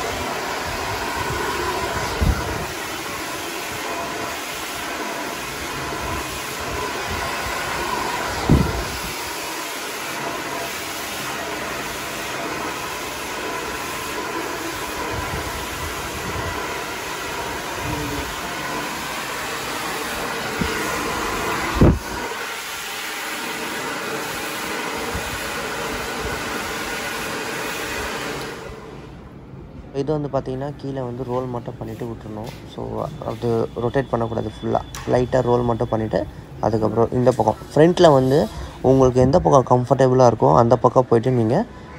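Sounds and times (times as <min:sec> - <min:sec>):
hair dryer blowing: 0:00.0 - 0:29.3.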